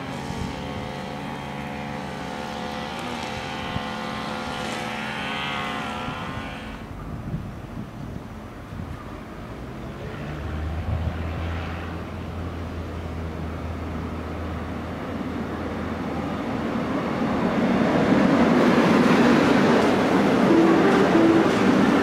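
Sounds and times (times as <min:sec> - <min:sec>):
electric train approaching: 0:11.2 - 0:22.0.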